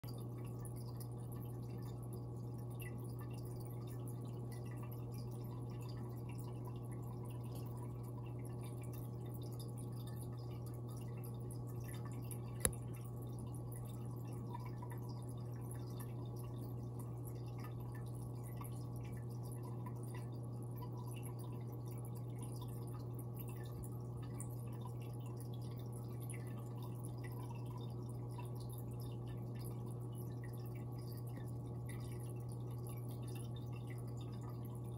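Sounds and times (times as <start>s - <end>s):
fish tank equipment humming: 0.0s - 34.9s
water dripping: 0.0s - 34.9s.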